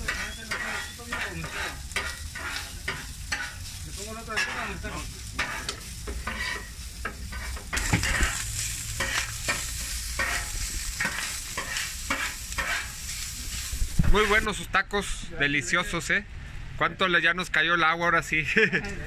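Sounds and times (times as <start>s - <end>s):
meat sizzling on griddle: 0.0s - 14.7s
metal spatula scraping griddle: 0.0s - 14.7s.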